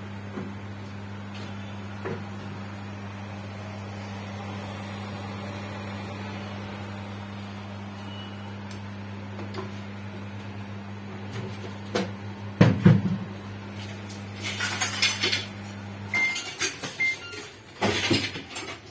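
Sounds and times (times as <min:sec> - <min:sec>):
microwave transformer hum: 0:00.0 - 0:18.9
short beeps: 0:08.0 - 0:08.6.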